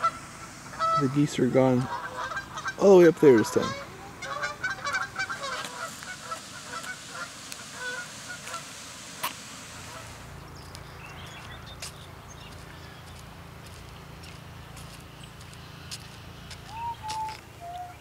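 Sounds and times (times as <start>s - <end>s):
low hum: 0.0s - 2.8s, 3.6s - 18.0s
geese honking: 0.0s - 18.0s.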